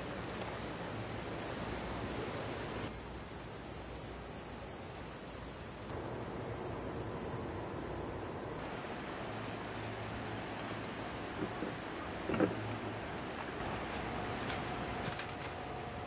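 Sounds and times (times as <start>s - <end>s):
night insects chirring: 1.4s - 8.6s, 13.6s - 16.0s.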